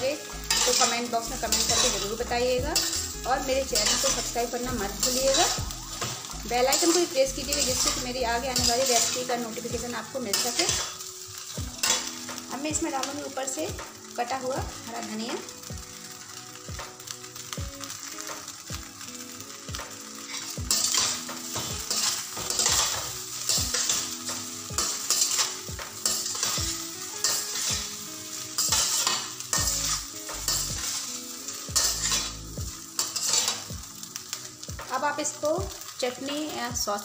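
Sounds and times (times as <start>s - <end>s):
oil sizzling: 0.0s - 37.0s
spatula scraping metal pan: 0.4s - 6.1s, 6.7s - 9.4s, 10.3s - 12.2s, 20.2s - 33.7s.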